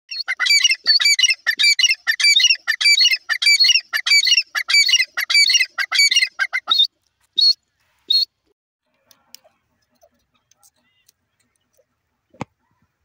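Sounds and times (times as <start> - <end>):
partridge calling harsh notes: 0.1 - 8.3.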